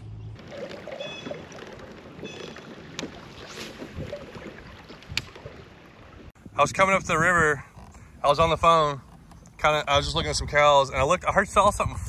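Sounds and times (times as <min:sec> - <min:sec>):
water splashing against kayak: 0:00.4 - 0:06.4.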